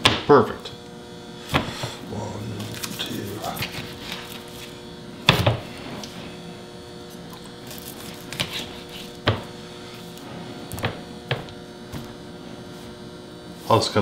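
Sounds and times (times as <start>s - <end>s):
steady hum: 0.0s - 14.0s
knife cutting meat: 2.6s - 4.7s, 7.1s - 9.5s
knocks on plastic cutting board: 9.2s - 9.5s.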